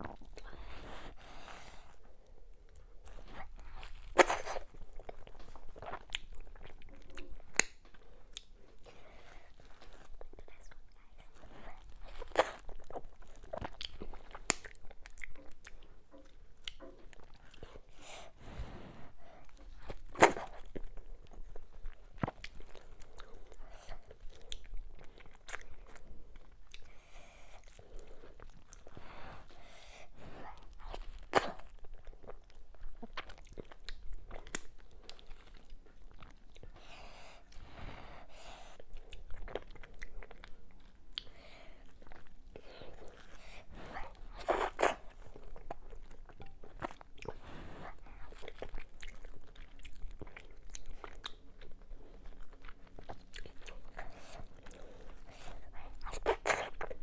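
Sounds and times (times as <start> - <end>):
wet chewing: 38.5 - 57.0.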